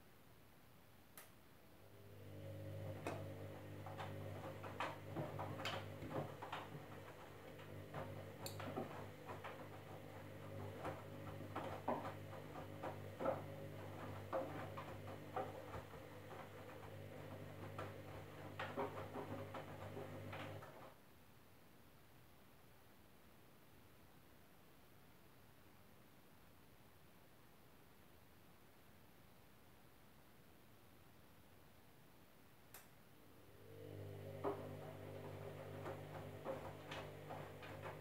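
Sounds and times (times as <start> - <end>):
washing machine motor hum: 1.8 - 21.0, 33.2 - 38.0
laundry knocking in drum: 2.9 - 20.8, 34.1 - 38.0.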